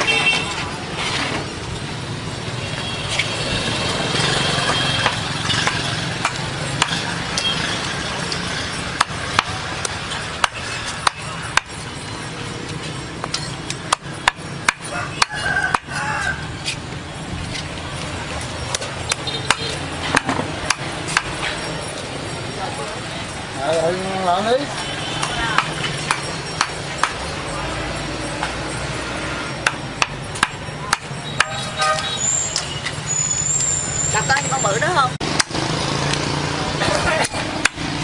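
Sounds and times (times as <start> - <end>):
sharp knocks and clicks: 12.6 - 15.9, 17.5 - 21.7, 25.2 - 27.2, 29.6 - 33.0.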